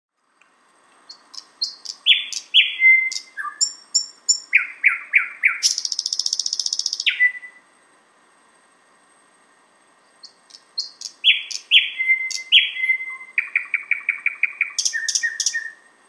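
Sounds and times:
bird singing sharp notes and rattle: 0:00.9 - 0:07.5, 0:10.1 - 0:15.9.

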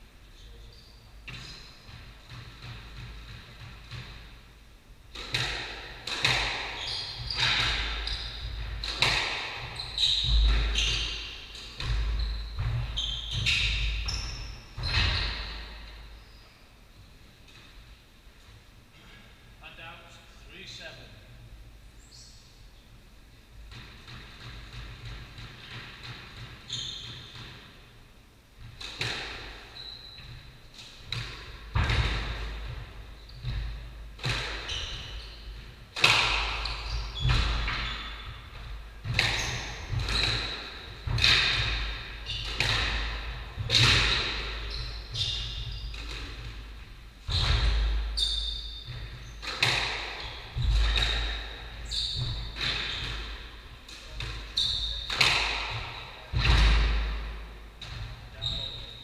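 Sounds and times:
squash ball hits echoing: 0:05.1 - 0:16.0, 0:28.6 - 0:58.2
shoes squeaking on wooden floor: 0:06.3 - 0:16.6, 0:26.6 - 0:27.4, 0:29.7 - 0:30.5, 0:34.4 - 0:56.6, 0:57.9 - 0:59.0.

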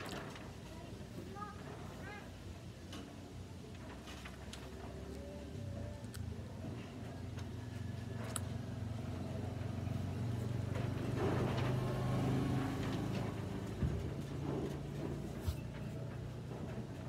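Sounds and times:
vehicle engine humming: 0:05.0 - 0:17.0.

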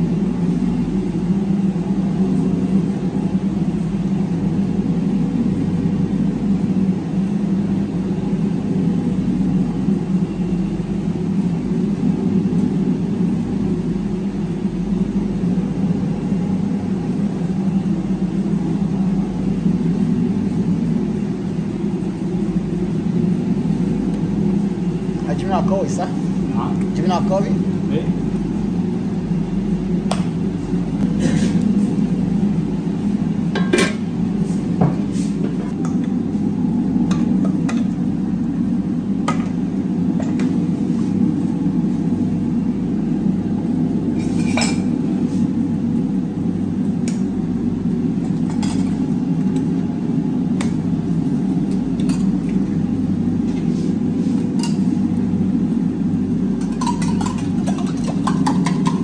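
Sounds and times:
low machine drone: 0:00.0 - 0:59.0
metal bowls and utensils clinking: 0:56.6 - 0:59.0.

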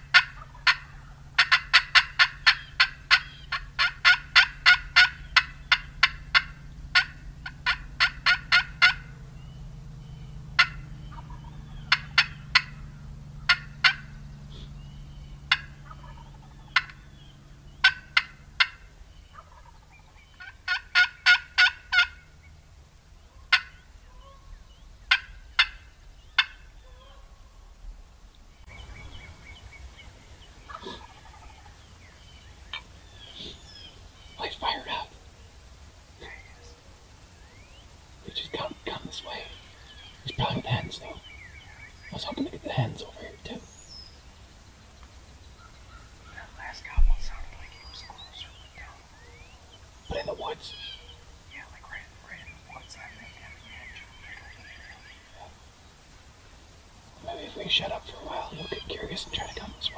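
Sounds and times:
turkey call sharp clucks: 0:00.0 - 0:09.2, 0:09.8 - 0:22.4, 0:23.3 - 0:27.2, 0:30.6 - 0:35.1, 0:57.2 - 0:59.9
low steady hum: 0:00.0 - 0:59.9.

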